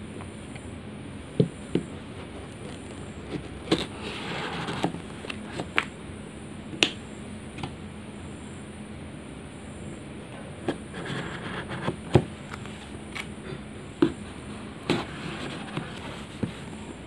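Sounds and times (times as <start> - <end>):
knife scraping cardboard box: 2.8 - 5.7, 10.7 - 12.2, 14.8 - 16.7.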